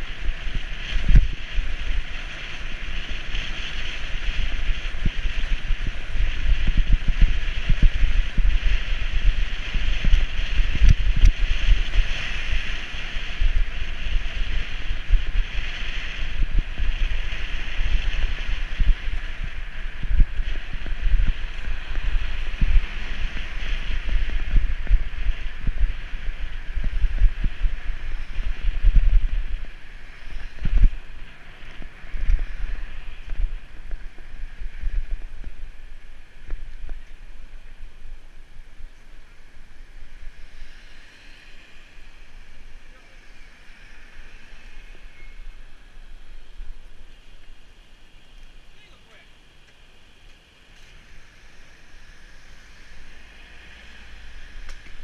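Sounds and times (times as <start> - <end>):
wind buffeting microphone: 0.0 - 47.7
road and air noise hiss: 0.0 - 55.0.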